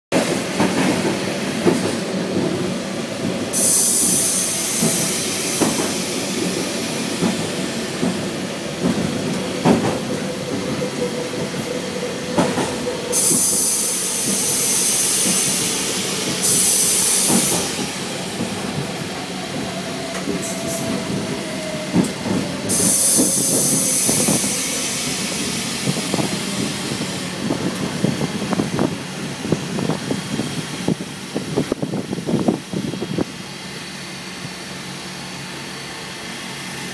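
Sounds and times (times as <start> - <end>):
diesel train running: 0.1 - 36.9
hissing air: 3.4 - 9.2, 13.0 - 30.5.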